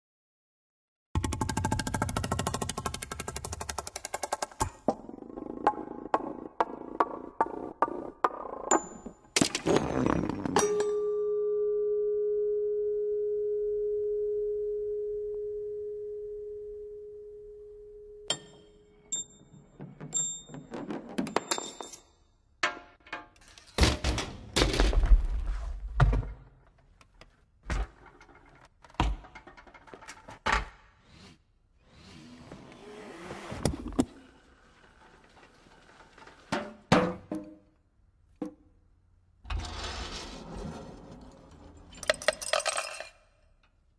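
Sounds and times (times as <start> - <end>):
metal parts knocking and clinking: 41.9 - 43.2.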